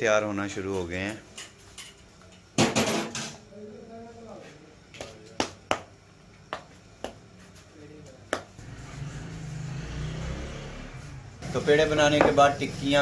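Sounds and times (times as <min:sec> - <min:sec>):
hands slapping dough: 0:05.0 - 0:05.9, 0:06.5 - 0:07.2.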